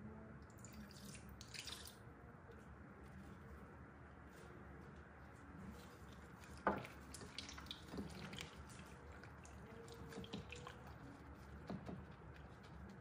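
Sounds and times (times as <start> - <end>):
wet squelches of mixing meat: 5.4 - 13.0.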